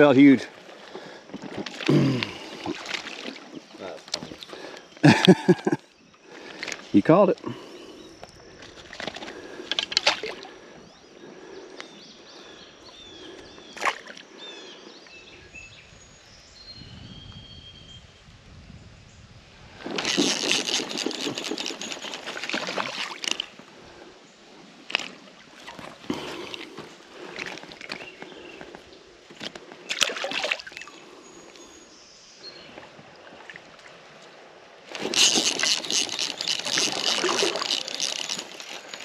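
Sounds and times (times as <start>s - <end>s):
water sloshing and splashing: 0.6s - 4.6s, 8.5s - 10.6s, 19.8s - 23.7s, 24.8s - 28.4s, 29.3s - 31.0s, 32.7s - 39.0s.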